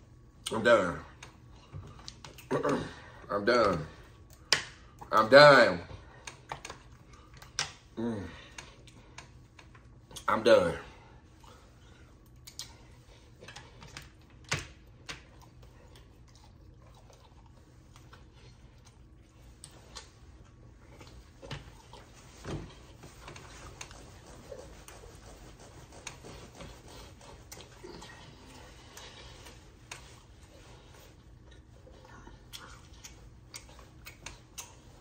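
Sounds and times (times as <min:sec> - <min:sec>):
mouth clicks and smacks: 0:12.2 - 0:12.8, 0:32.4 - 0:35.0
person chewing: 0:12.2 - 0:12.8, 0:15.1 - 0:22.2, 0:31.2 - 0:34.9.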